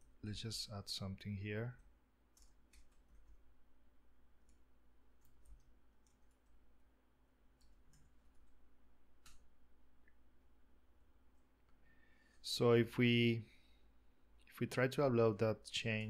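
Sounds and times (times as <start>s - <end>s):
computer keyboard typing clicks: 1.8s - 3.4s, 5.2s - 6.6s, 7.6s - 8.6s.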